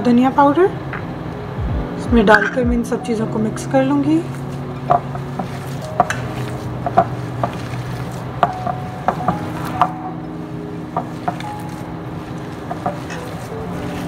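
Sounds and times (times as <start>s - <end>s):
steady low hum: 0.0s - 14.0s
hands squeezing food mash: 5.0s - 10.0s, 10.9s - 14.0s.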